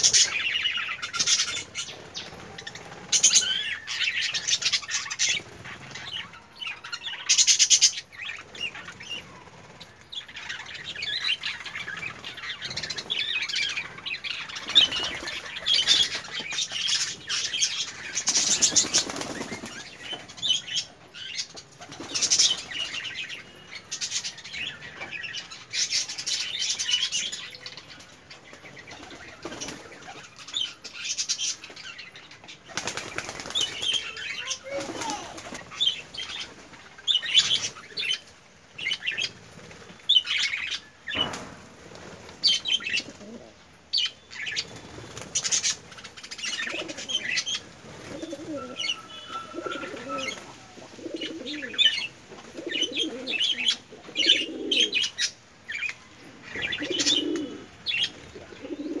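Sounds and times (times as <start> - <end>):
wings flapping: 14.5 - 17.4, 18.2 - 20.3, 28.5 - 30.4, 32.7 - 37.8, 44.6 - 48.7.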